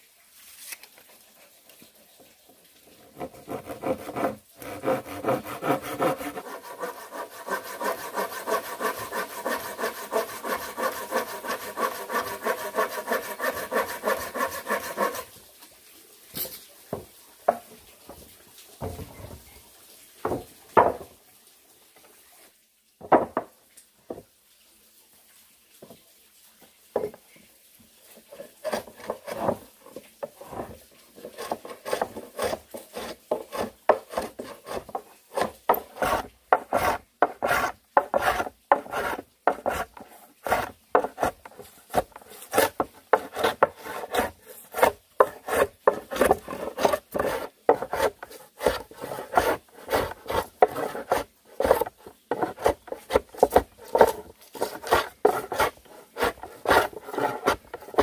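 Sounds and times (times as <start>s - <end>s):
wood rasping by hand: 3.1s - 15.3s, 28.3s - 29.6s, 30.2s - 58.0s.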